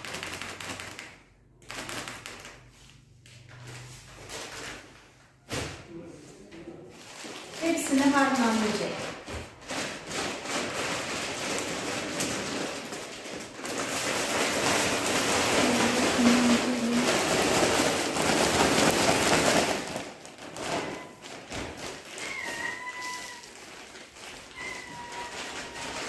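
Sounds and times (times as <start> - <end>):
plastic bag crinkling: 6.8 - 26.0.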